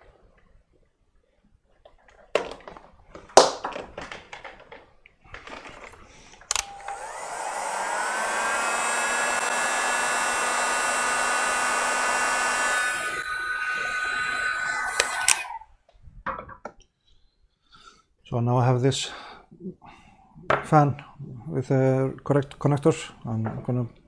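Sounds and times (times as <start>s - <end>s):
heat gun fan whine: 6.4s - 15.6s
heat gun switch click: 6.5s - 13.0s.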